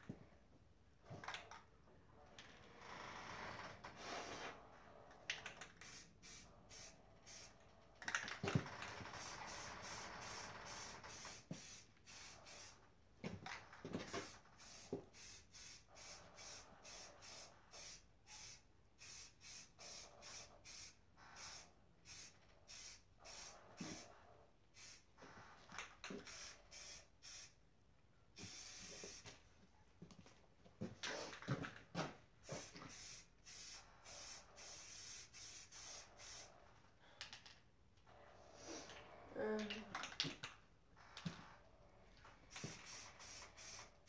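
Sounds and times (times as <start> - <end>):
aerosol can spraying: 5.8 - 7.5, 9.2 - 12.8, 14.1 - 24.1, 24.8 - 25.0, 26.1 - 27.6, 28.4 - 29.3, 32.4 - 36.5, 42.5 - 44.0.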